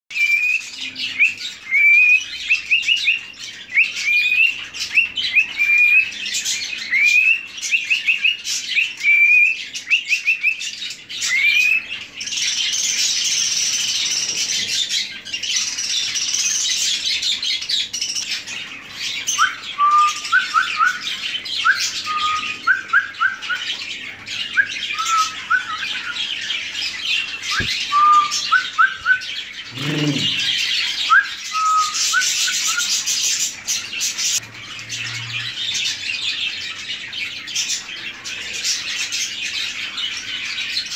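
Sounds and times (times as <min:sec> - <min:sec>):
cockatiel chirping and whistling: 0:00.2 - 0:06.1, 0:06.9 - 0:10.6, 0:11.2 - 0:11.8, 0:19.3 - 0:23.7, 0:24.5 - 0:26.2, 0:27.5 - 0:30.4
raspy bird chatter: 0:23.9 - 0:31.0.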